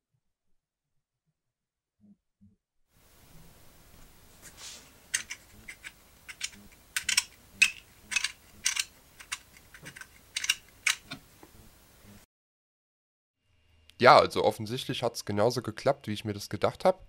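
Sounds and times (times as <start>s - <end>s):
hard plastic parts clicking together: 5.1s - 11.3s.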